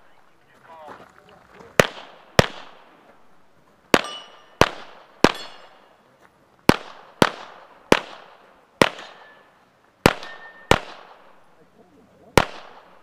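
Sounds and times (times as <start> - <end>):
gunshots with echo: 1.8 - 3.0, 3.9 - 6.0, 6.7 - 11.5, 12.4 - 13.0
steel plate ringing: 4.0 - 4.6, 5.3 - 5.9, 9.0 - 9.6, 10.2 - 10.8.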